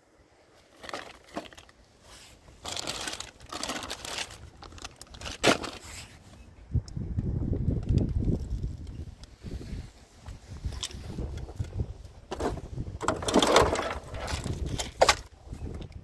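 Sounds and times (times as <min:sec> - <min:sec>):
plastic bag crinkling: 0:00.6 - 0:06.0
wind buffeting microphone: 0:06.5 - 0:16.0.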